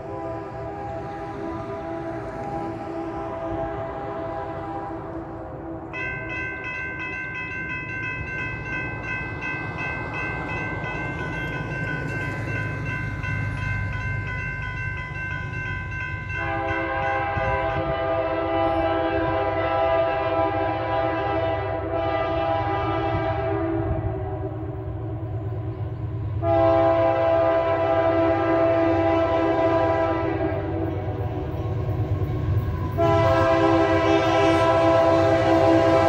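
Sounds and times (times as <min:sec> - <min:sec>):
locomotive horn chord: 0:00.0 - 0:06.6, 0:16.3 - 0:25.4, 0:26.4 - 0:31.8, 0:32.8 - 0:36.0
train rumble: 0:00.0 - 0:36.0.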